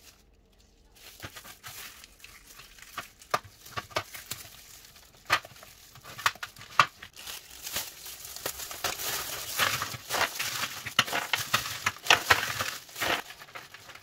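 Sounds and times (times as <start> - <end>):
plastic gloves crinkling: 0.0 - 14.0.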